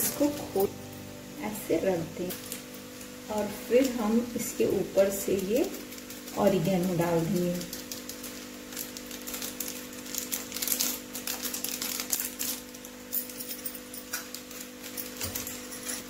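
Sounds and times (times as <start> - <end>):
steady low hum: 0.0 - 10.7
food crackling in a frying pan: 0.0 - 16.0.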